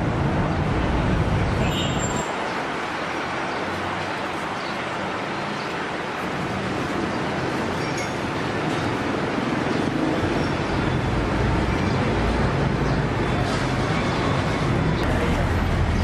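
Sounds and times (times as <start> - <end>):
traffic noise: 0.0 - 16.0.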